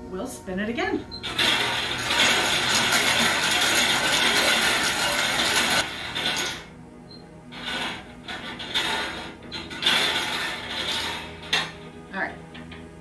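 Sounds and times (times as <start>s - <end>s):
bingo balls rattling in wire cage: 1.2s - 6.7s, 7.5s - 11.9s.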